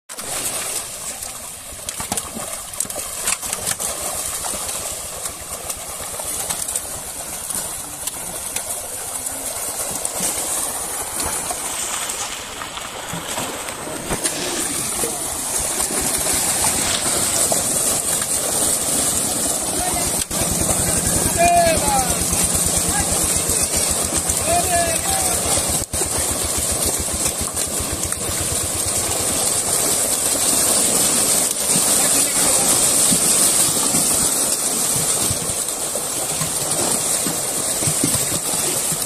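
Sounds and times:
fish thrashing and splashing: 0.1s - 39.0s.

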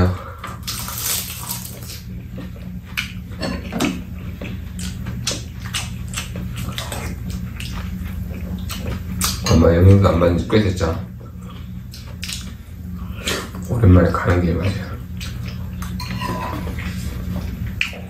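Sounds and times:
low hum: 0.0s - 18.0s
wet chewing and slurping: 4.1s - 9.4s.

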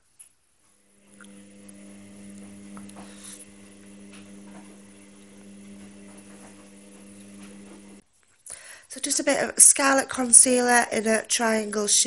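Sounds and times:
fridge compressor humming: 0.8s - 8.0s.

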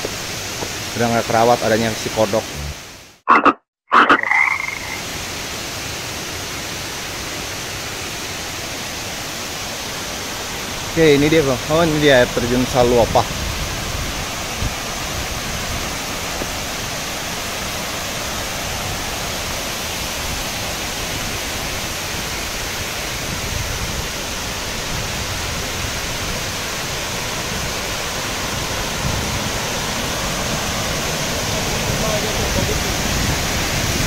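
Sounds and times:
waterfall roaring: 4.0s - 34.0s.

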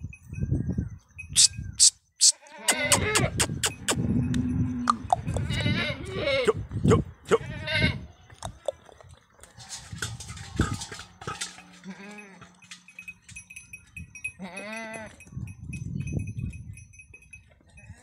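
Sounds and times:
goats bleating: 2.4s - 3.4s, 4.9s - 8.7s.

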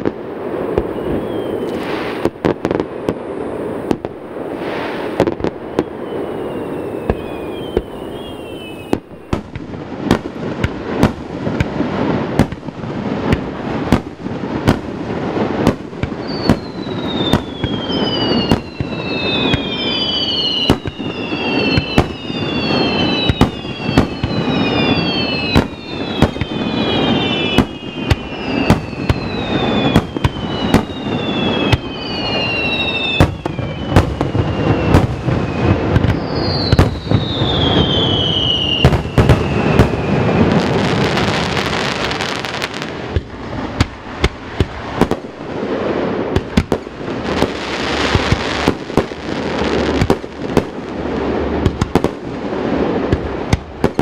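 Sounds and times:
falling whistles of shells: 0.7s - 2.4s, 4.6s - 9.4s, 16.2s - 42.8s.

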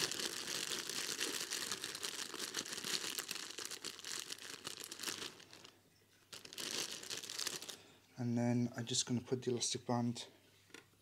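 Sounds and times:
plastic bag crinkling: 0.0s - 8.0s.

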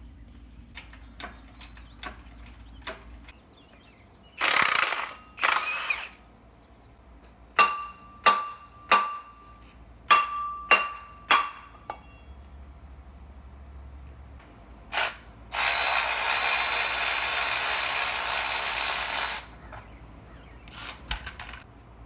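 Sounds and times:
impact wrench bursts: 4.4s - 6.2s, 14.9s - 19.5s
hammer ringing on steel: 7.6s - 9.5s, 10.1s - 12.1s.

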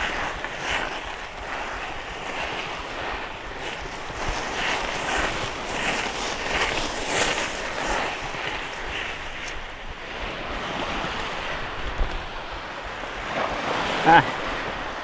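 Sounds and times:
bicycle tyres crunching on pebbles: 0.0s - 9.6s
wind on microphone: 0.0s - 15.0s.

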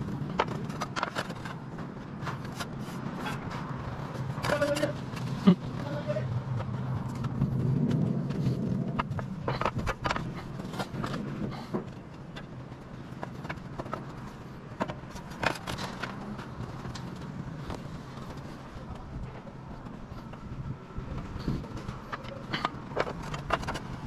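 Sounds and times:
roof tiles clinking and knocking: 0.0s - 3.5s.

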